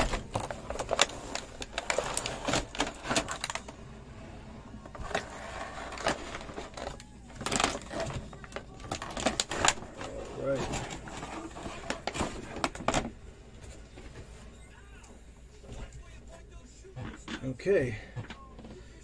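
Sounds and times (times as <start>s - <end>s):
hands handling plastic toy and box: 0.0s - 3.8s, 4.9s - 14.2s.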